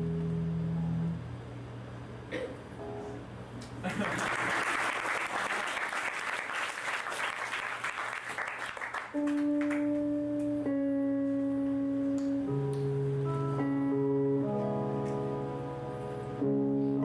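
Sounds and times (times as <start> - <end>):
organ-like sustained chords: 0.0 - 1.4, 9.2 - 17.0
audience applause: 3.8 - 10.0.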